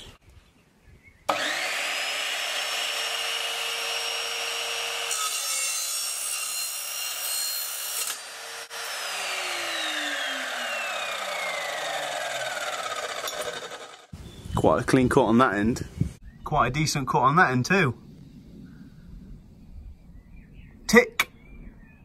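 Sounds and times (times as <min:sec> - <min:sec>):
saw motor whine spinning down: 0:01.3 - 0:05.0, 0:08.0 - 0:14.1
chop saw cutting steel: 0:01.3 - 0:14.1.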